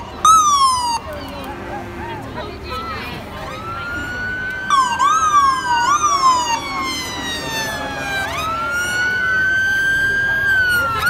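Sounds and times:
police siren slow wail: 0.0s - 11.0s
police siren fast sweep: 0.2s - 1.1s, 3.4s - 11.0s.

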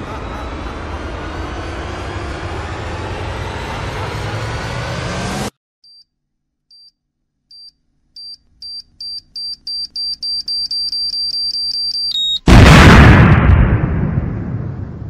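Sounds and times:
loud rushing noise: 0.0s - 5.6s.

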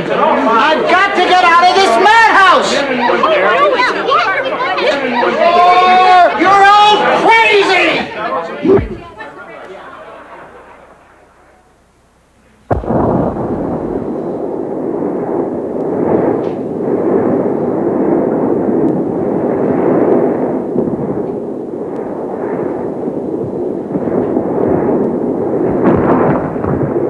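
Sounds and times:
audience laughing: 8.8s - 11.2s.

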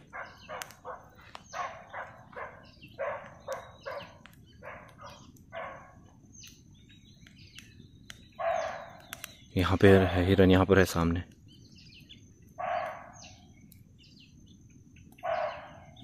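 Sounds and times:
deer alarm barks: 0.0s - 6.1s, 8.3s - 9.2s, 12.6s - 13.4s, 15.1s - 16.0s
faint birds chirping: 0.0s - 16.0s.

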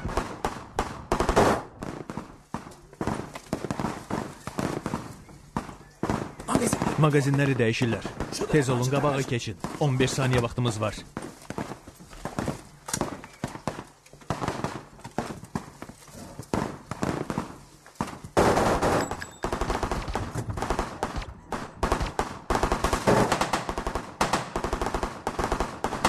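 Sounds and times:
automatic rifle fire: 0.0s - 2.0s, 18.4s - 26.0s.

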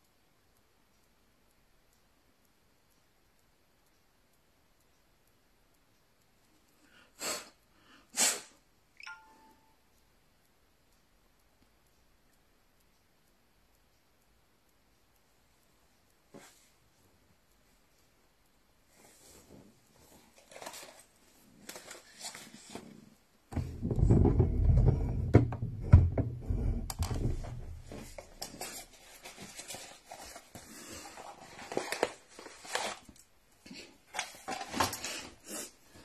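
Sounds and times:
microphone handling rumble: 23.6s - 27.9s
plastic packaging crinkling: 28.4s - 33.2s.

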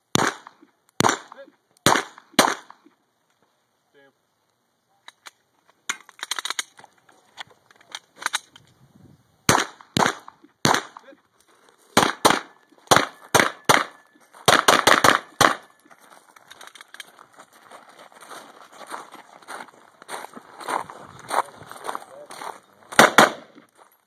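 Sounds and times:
handgun shots: 9.5s - 11.0s, 12.0s - 15.8s, 23.0s - 23.6s
footsteps crunching on gravel: 11.4s - 24.0s.

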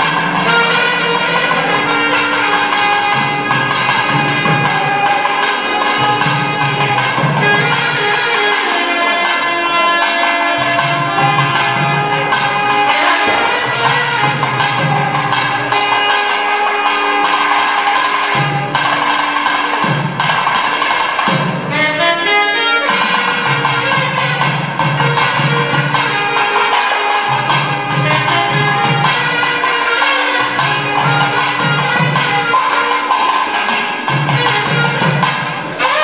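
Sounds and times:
steady drum strokes: 0.0s - 8.6s
reedy wind instrument melody: 0.0s - 36.0s.

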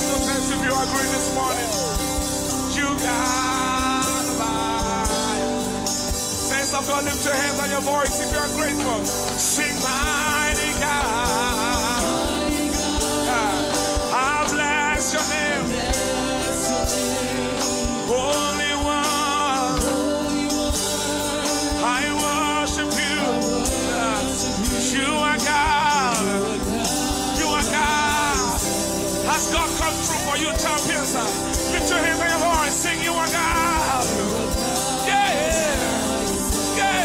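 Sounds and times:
backing singers: 0.0s - 7.7s, 8.5s - 37.0s
band playing: 0.0s - 37.0s
man singing lead: 0.0s - 37.0s.

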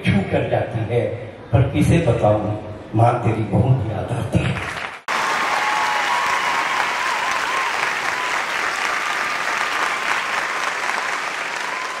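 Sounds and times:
audience applause: 4.6s - 12.0s.

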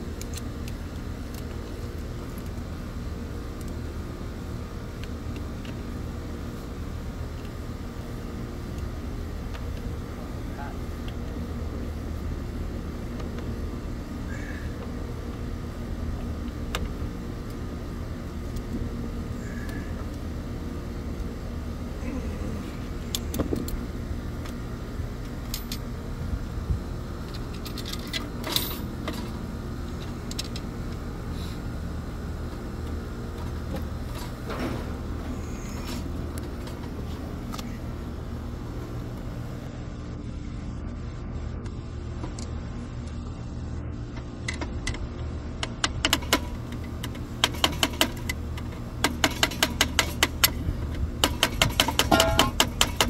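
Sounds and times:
low hum of machinery: 0.0s - 53.0s
metal clicks from tools and wiring: 27.3s - 29.4s, 30.0s - 31.0s, 45.6s - 53.0s.

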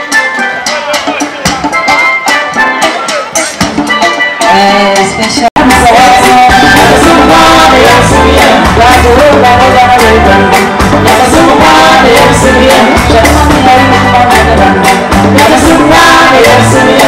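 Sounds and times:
bass line: 0.0s - 17.0s
drums: 0.0s - 17.0s
woman singing lead: 4.4s - 17.0s
backing singers: 4.5s - 17.0s.

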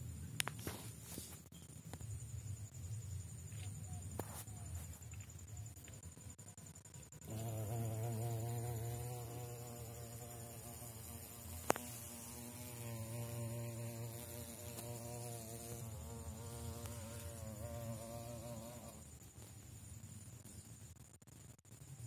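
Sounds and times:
wasp buzzing: 7.1s - 19.3s.

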